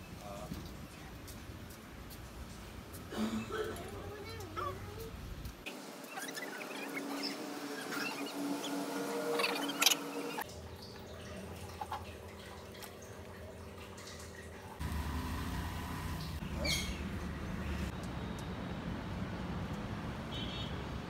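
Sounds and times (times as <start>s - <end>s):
low outdoor background rumble: 0.2s - 5.7s.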